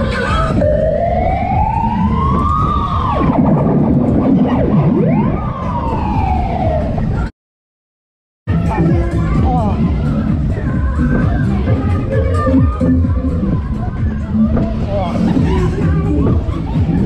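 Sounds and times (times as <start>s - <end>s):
siren wailing: 0.0s - 7.3s
steady low noise: 0.0s - 7.3s, 8.5s - 17.0s.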